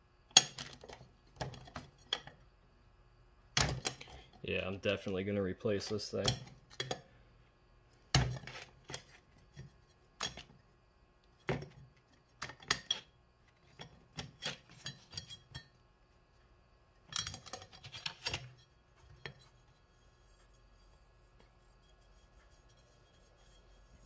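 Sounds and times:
metal plates clinking and scraping: 0:13.7 - 0:15.8, 0:17.1 - 0:20.9.

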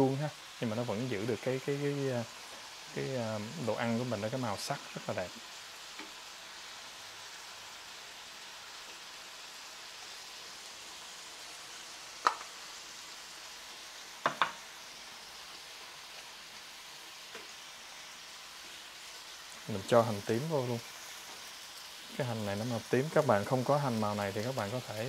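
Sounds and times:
food sizzling in a frying pan: 0:00.0 - 0:25.0
sharp knocks against pan: 0:12.2 - 0:12.5, 0:14.2 - 0:14.6.

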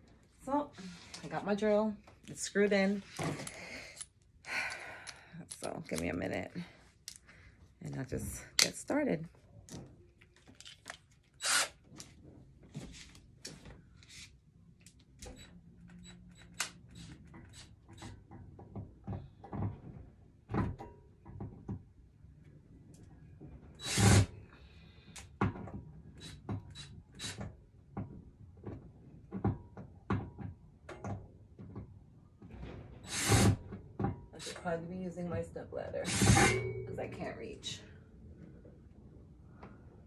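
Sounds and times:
cordless drill: 0:11.4 - 0:11.8, 0:23.8 - 0:24.3, 0:26.2 - 0:27.4, 0:33.1 - 0:33.6, 0:36.1 - 0:36.5.

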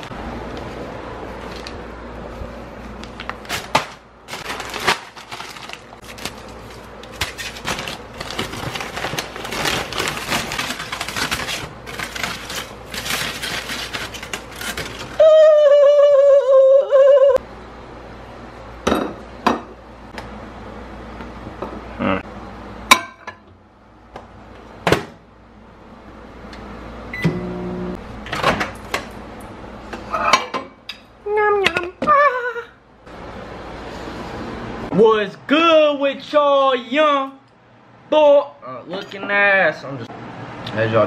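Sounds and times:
paper bag rustling: 0:02.9 - 0:15.2
aluminium foil crinkling: 0:03.0 - 0:15.2.

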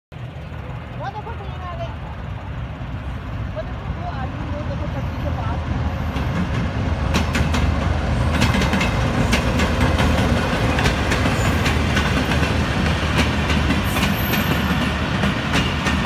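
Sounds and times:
locomotive engine drone: 0:00.1 - 0:16.0
wheels clattering over rail joints: 0:06.0 - 0:16.0.

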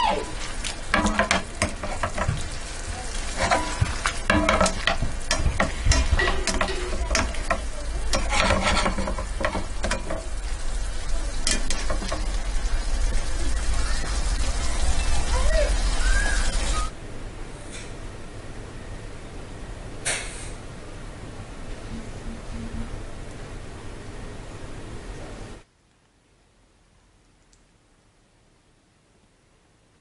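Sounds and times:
vegetables sizzling in a pan: 0:00.0 - 0:16.9
spatula scraping a pan: 0:00.3 - 0:10.6, 0:11.4 - 0:12.4.

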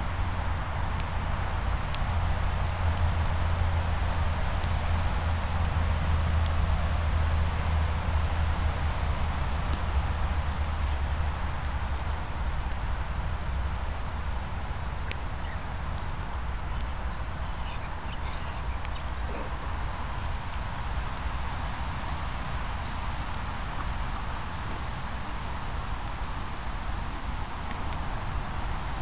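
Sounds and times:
wind with low rumble: 0:00.0 - 0:29.0
songbird singing: 0:14.8 - 0:25.1.

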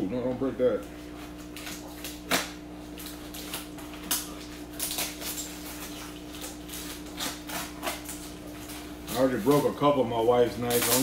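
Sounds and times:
packaging being cut open: 0:01.4 - 0:09.7, 0:10.7 - 0:11.0.

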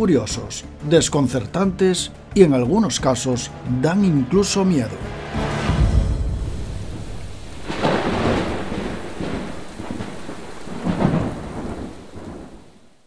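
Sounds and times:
thunder rumbling: 0:05.8 - 0:13.0
heavy rain: 0:06.2 - 0:13.0.

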